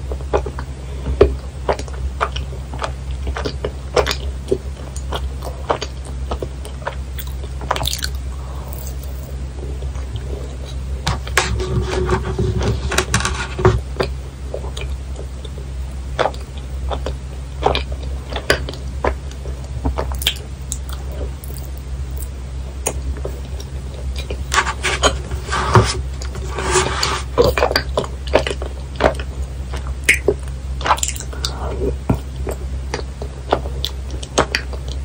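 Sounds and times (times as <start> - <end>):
low steady hum: 0.0 - 35.0
wet mouth smacking and chewing: 1.7 - 10.9, 16.2 - 24.5, 27.4 - 35.0.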